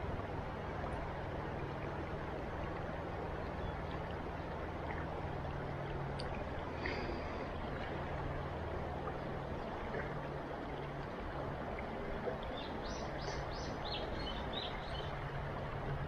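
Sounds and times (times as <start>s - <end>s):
bird chirping: 12.6s - 15.1s.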